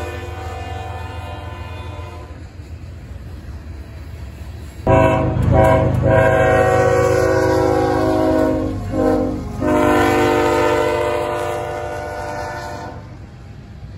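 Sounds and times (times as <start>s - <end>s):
locomotive air horn blasts: 0.0s - 2.5s, 4.9s - 13.2s
low rumble of passing train: 0.0s - 13.9s.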